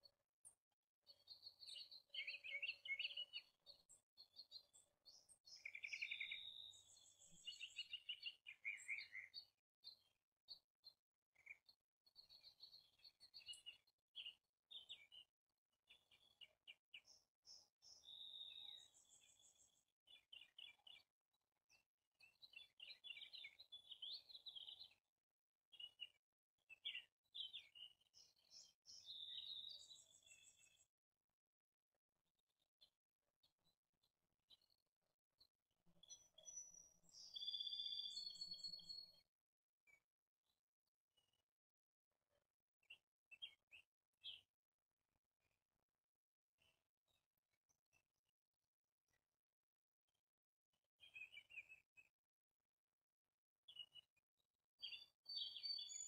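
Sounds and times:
small birds chirping: 0.0 - 25.1, 25.7 - 31.0, 32.4 - 39.3, 42.8 - 44.6, 51.0 - 52.2, 53.6 - 54.2, 54.8 - 56.0.

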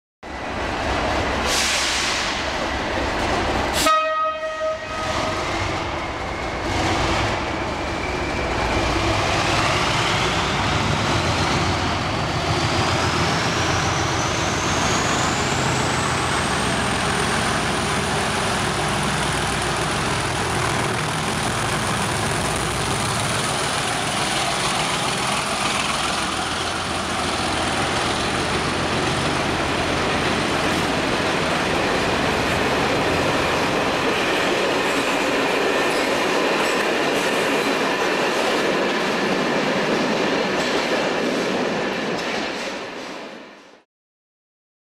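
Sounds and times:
model train horn blast: 3.8 - 5.4.

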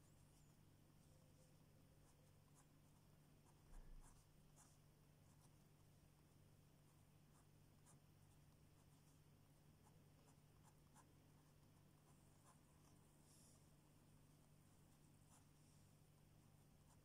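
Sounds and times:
pen scratching on paper: 2.0 - 5.6, 9.8 - 13.8.

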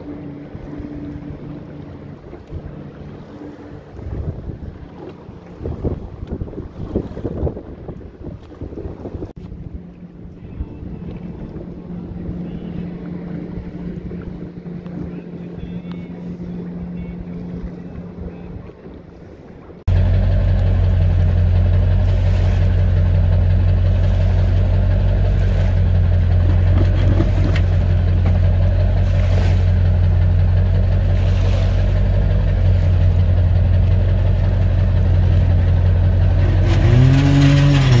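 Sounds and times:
engine idling and revving: 19.9 - 38.0.

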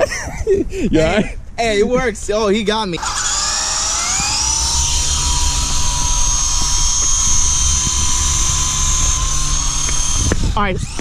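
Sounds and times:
rotor wash rumble: 0.0 - 11.0
toy helicopter motor whine: 3.0 - 11.0.

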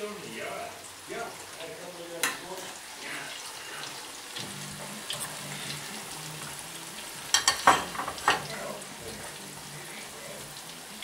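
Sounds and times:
food sizzling in a frying pan: 0.0 - 11.0
utensil clinking against pan: 7.3 - 8.6.

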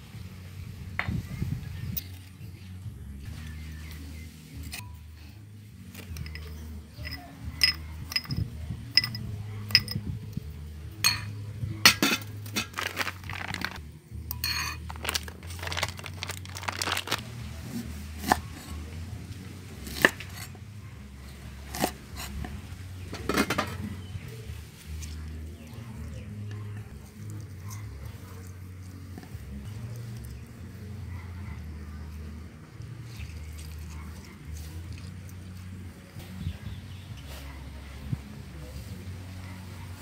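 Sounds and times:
metal spoon scraping ceramic bowl: 6.1 - 10.0, 14.3 - 14.9.

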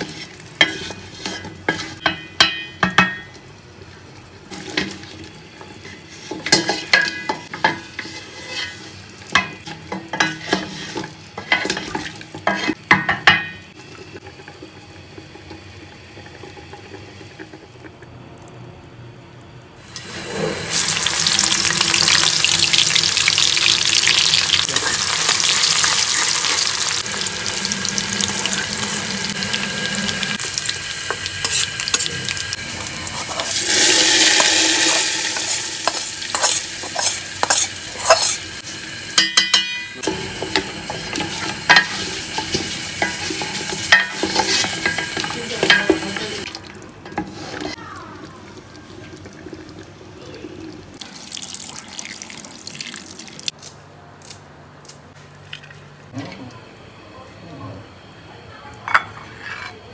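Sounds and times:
food sizzling in hot oil: 19.8 - 48.0.

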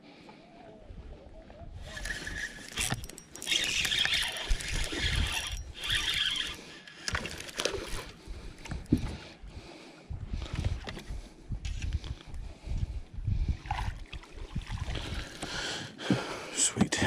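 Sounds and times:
fishing reel whirring: 1.8 - 8.2.

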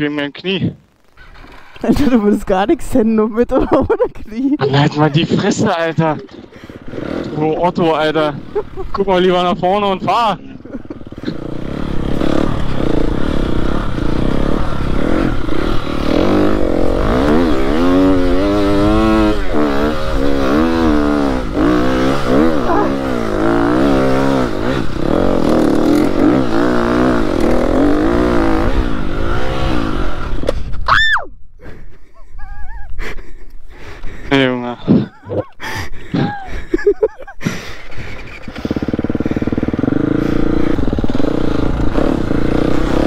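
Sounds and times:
motocross bike engine revving: 4.6 - 30.5, 36.8 - 43.0.

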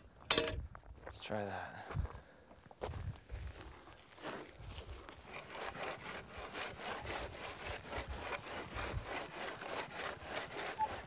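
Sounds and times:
board rubbing on wooden forms: 5.2 - 11.0.

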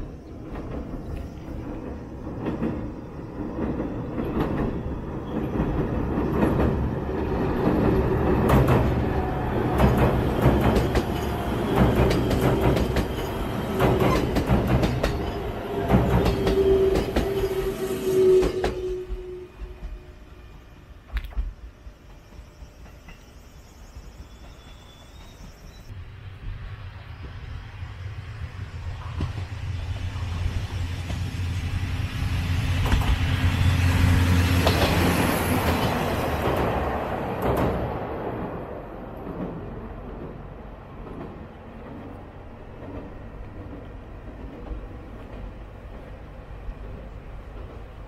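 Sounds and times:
steady train hum: 0.0 - 48.0
train rumbling over bridge: 0.0 - 48.0
wheels clicking over rail joints: 0.1 - 17.7.

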